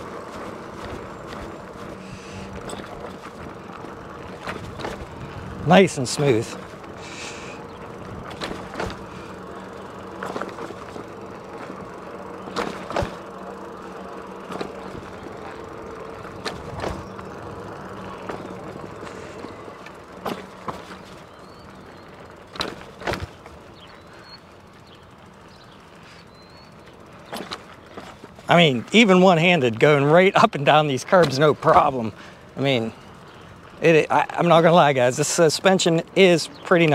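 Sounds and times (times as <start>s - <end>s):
bike wheels thumping on curbs: 0.0s - 36.9s
faint electric motor whine: 0.0s - 36.9s
knobby tyres rolling on pavement: 0.0s - 36.9s.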